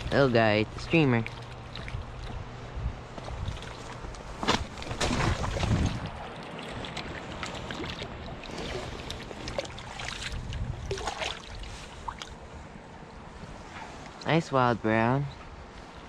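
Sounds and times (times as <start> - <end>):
creek water running: 0.0 - 12.5
wind buffeting microphone: 0.0 - 13.7.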